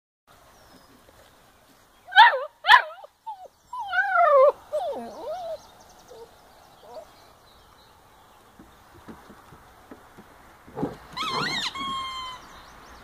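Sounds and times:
puppies yelping and whining: 2.1s - 7.1s, 11.1s - 12.4s.

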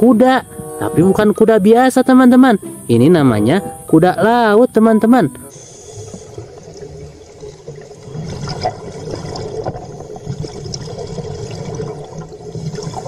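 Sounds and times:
aquarium water bubbling: 5.1s - 13.0s.

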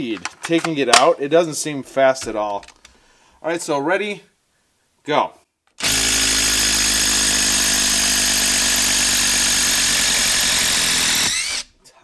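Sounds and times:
impact driver running: 5.8s - 11.7s.

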